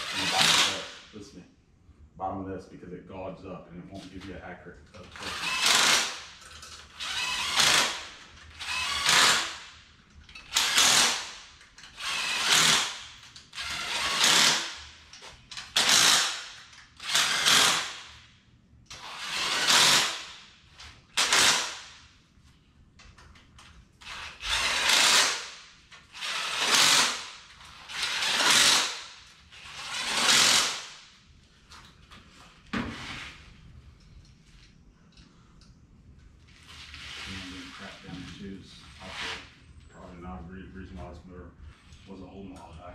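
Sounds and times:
cordless drill driving fasteners: 0:00.0 - 0:01.0, 0:05.0 - 0:18.2, 0:18.9 - 0:21.9, 0:23.6 - 0:31.0.

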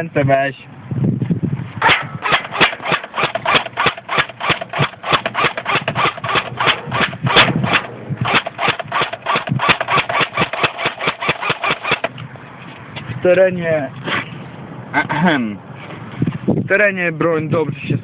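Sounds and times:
airsoft rifle firing clicks: 0:01.8 - 0:12.2.

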